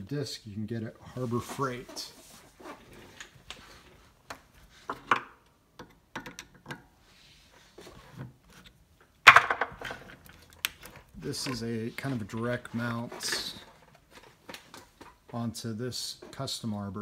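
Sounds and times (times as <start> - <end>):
light clicks and rubbing: 10.1 - 15.5.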